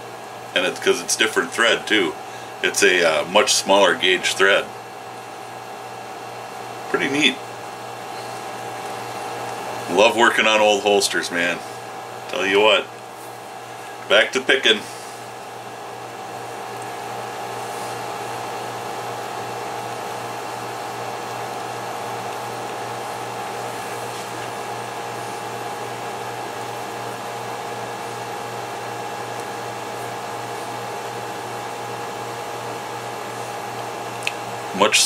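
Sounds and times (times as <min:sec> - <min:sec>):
machine hum with whine: 0:00.0 - 0:35.0.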